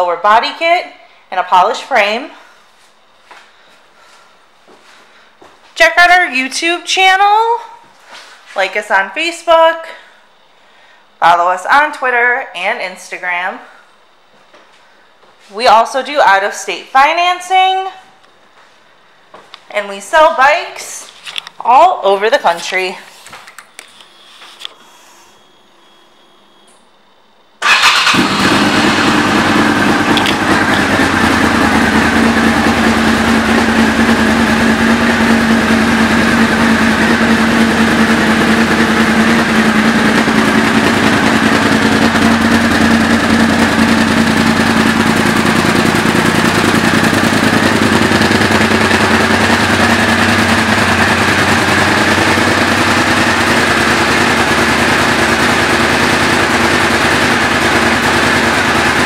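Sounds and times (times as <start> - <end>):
motorcycle engine idling: 27.6 - 59.0.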